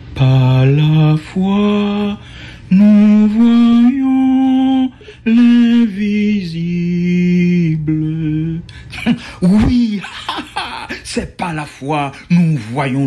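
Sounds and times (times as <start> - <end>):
person singing slow melody: 0.0 - 10.0.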